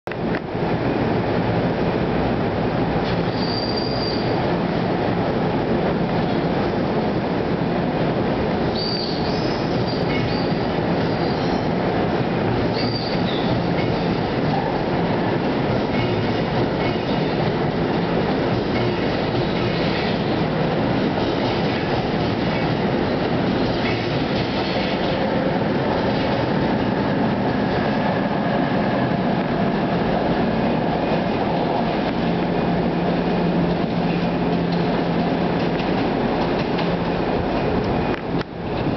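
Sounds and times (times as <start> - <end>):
train wheels rumbling on rails: 0.1 - 38.9
clicking over rail joints: 33.7 - 38.9.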